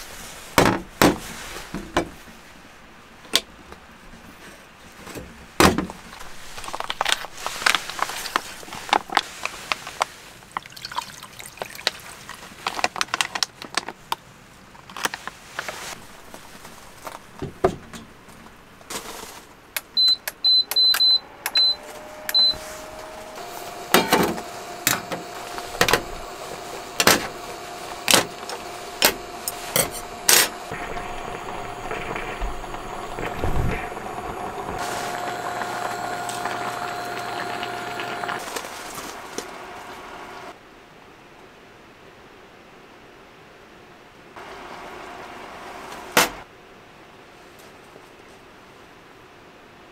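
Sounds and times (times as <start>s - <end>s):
food handling clicks and rustles: 5.0s - 10.7s, 11.6s - 21.0s, 33.2s - 40.5s
short high beeps: 20.0s - 22.6s
induction cooktop hum: 20.6s - 40.5s.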